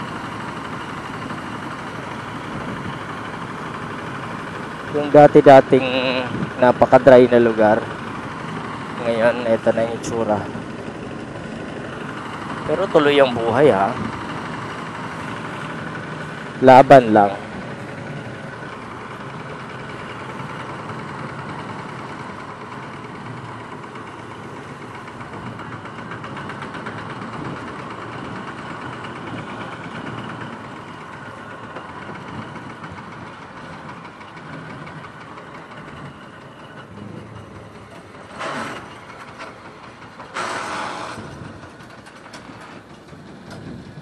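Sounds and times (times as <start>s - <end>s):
motorcycle engine running: 0.0s - 44.0s.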